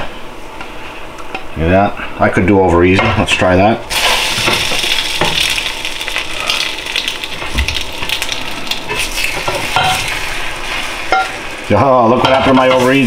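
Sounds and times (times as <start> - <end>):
eggs sizzling in frying pan: 3.9 - 13.0.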